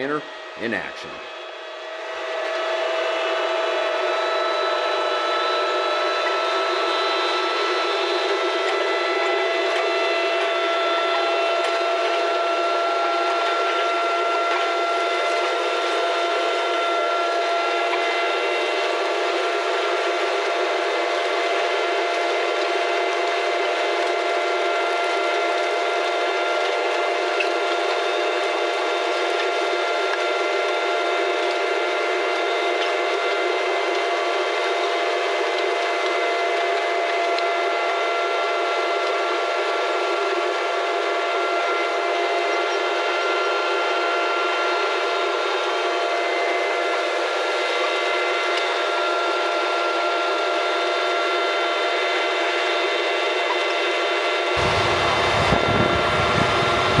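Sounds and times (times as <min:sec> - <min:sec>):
quadcopter drone whining: 0:00.0 - 0:19.5, 0:54.5 - 0:57.0.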